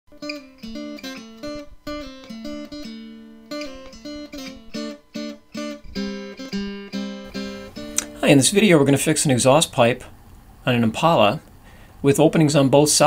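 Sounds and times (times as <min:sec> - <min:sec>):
acoustic guitar playing: 0:00.1 - 0:11.9.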